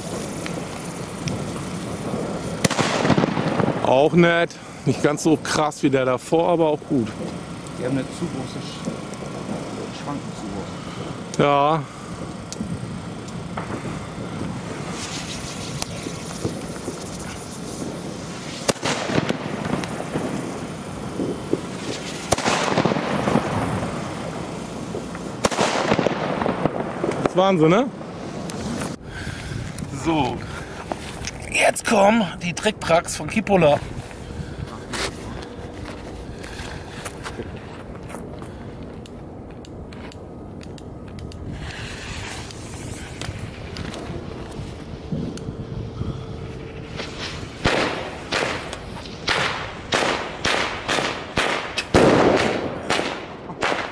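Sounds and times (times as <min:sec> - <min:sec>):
firework cracks: 0:00.0 - 0:33.8, 0:34.8 - 0:45.6, 0:46.5 - 0:53.9
firework hissing and crackling: 0:00.0 - 0:53.9
wind rumble on microphone: 0:06.8 - 0:31.5, 0:32.7 - 0:53.7
brief hiss: 0:41.5 - 0:43.5.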